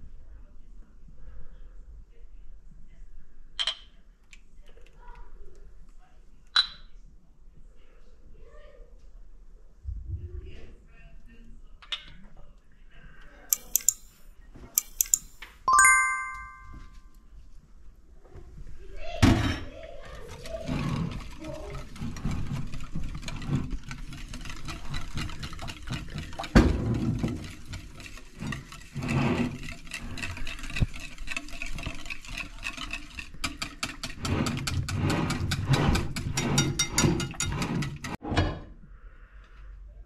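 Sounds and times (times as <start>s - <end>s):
fast run of clicks: 13.5s - 14.2s, 14.8s - 15.4s
dough scraping in bowl: 20.2s - 38.2s.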